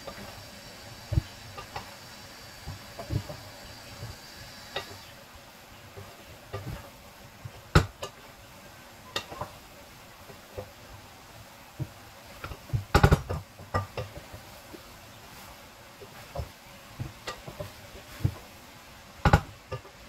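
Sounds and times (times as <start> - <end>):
faint sizzle: 0.0 - 20.0
wooden spatula scraping a pan: 13.6 - 18.5.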